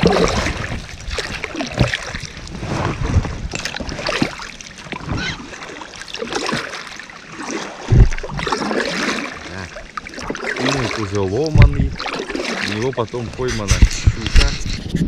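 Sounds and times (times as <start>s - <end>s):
paddle strokes splashing water: 0.0s - 15.0s
low thump: 7.9s - 8.4s, 11.5s - 12.0s.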